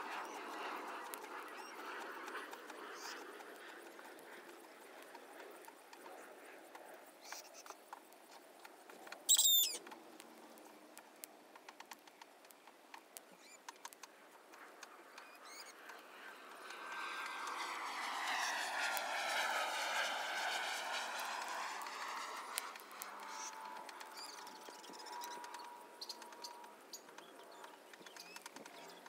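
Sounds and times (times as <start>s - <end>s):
bird chirping: 9.3s - 9.9s.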